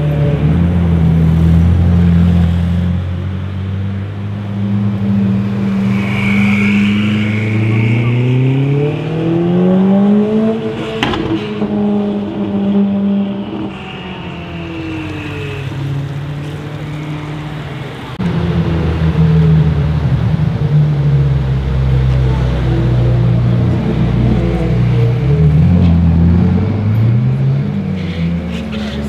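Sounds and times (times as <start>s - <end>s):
engine revving: 0.0s - 29.0s
high squeal: 5.5s - 11.6s, 13.2s - 18.2s
exhaust pop: 10.7s - 12.4s.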